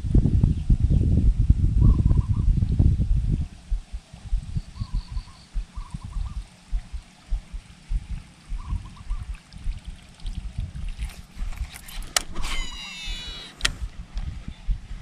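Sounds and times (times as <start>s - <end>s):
wind buffeting microphone: 0.0s - 15.0s
faint chirps: 3.5s - 7.5s
sharp clicks: 11.9s - 13.9s.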